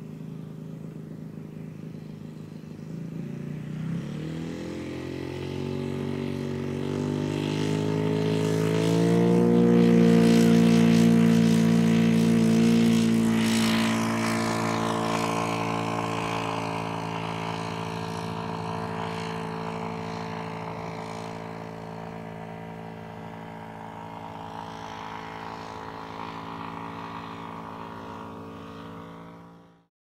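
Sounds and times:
model plane engine and propeller: 0.0 - 29.9.

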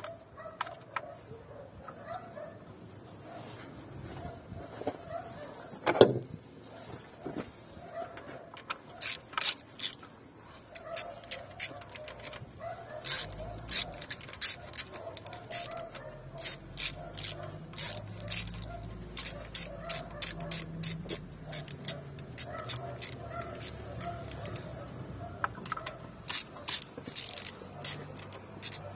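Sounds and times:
ratchet wrench clicking: 8.6 - 24.8, 25.5 - 28.9.

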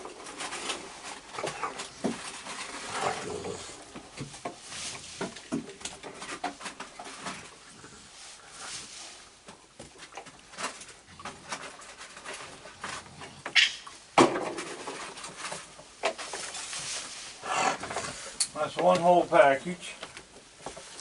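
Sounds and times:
claws scrabbling on boards: 0.0 - 7.9
raccoons crunching food: 0.0 - 21.0.

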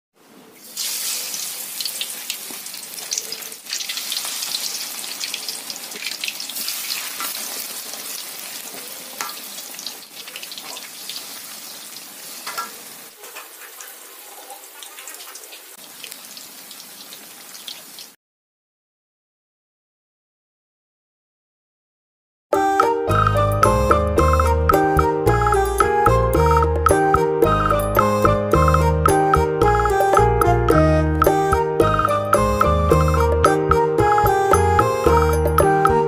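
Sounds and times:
fish sizzling in hot oil: 0.6 - 18.2.

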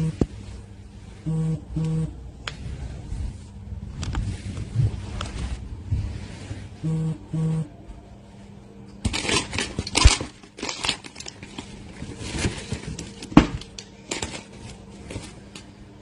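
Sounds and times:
short low buzzes: 0.0 - 8.8
phone microphone rubbing and scraping: 2.6 - 7.5.

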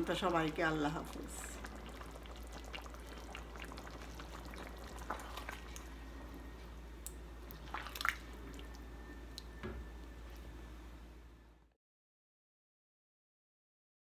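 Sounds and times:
curry bubbling: 0.0 - 10.6.

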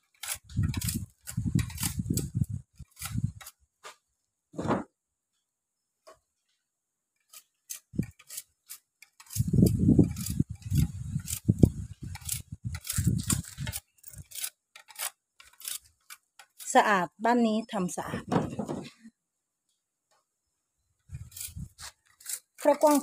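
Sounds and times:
knife scraping sugarcane: 0.0 - 3.6, 7.2 - 16.9, 21.1 - 23.0.

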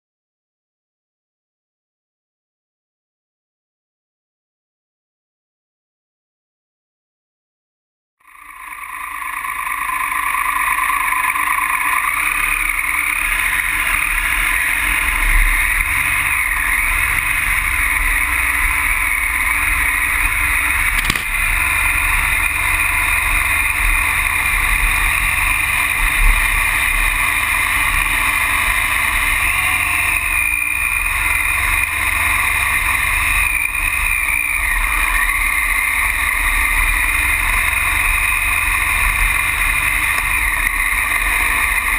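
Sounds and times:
motorcycle engine running: 8.2 - 41.9
tyres on gravel: 8.9 - 33.4.

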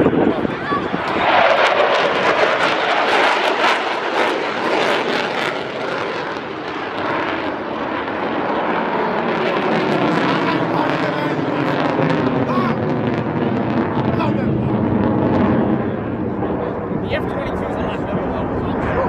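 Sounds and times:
jet engine roaring: 0.0 - 19.0.

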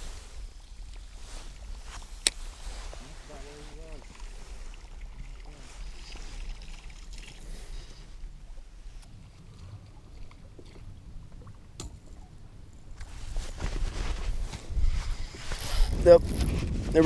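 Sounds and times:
wind rumbling on microphone: 0.0 - 17.0
water lapping against boat hull: 0.1 - 12.4.

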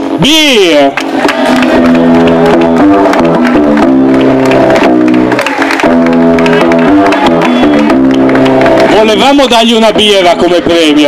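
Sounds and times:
loud music over loudspeakers: 0.0 - 11.0
hand clapping: 0.9 - 9.2.

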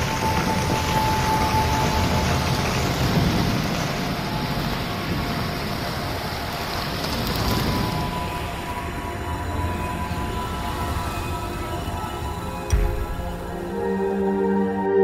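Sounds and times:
deep rumble: 12.7 - 14.4.

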